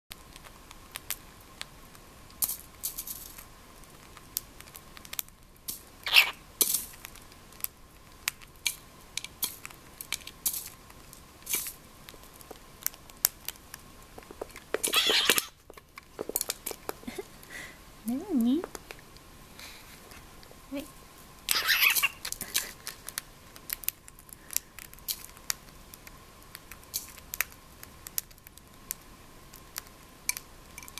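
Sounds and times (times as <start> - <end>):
beak pecking plastic dish: 14.2 - 17.0.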